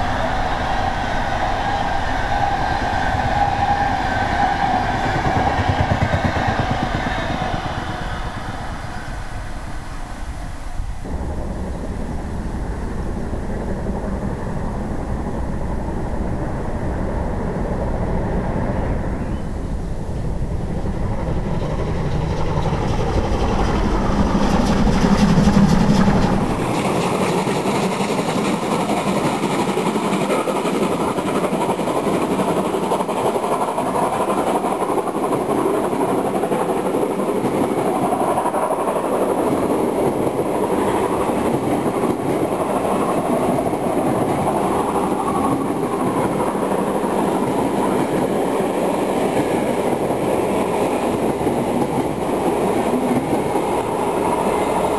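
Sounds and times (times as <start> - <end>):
coaches rolling past: 0.0 - 16.2
steam train passing: 0.0 - 54.9.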